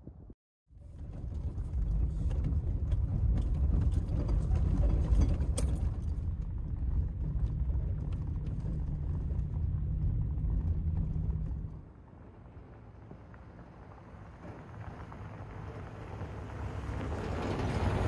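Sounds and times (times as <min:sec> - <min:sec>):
truck engine and tyres rumbling: 0:00.0 - 0:18.0
ticks and rattles in truck cab: 0:01.2 - 0:11.8.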